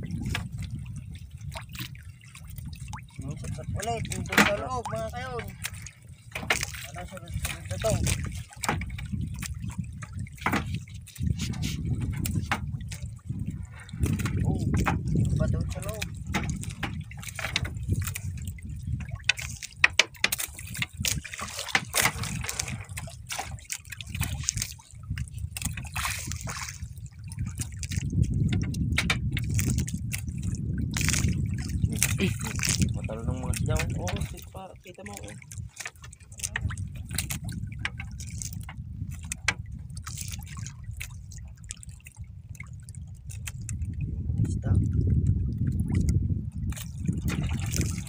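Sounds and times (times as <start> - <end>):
steady low rumble: 0.0 - 5.9, 43.8 - 48.0
water dripping and splashing: 0.0 - 48.0
low rumble: 43.9 - 47.7.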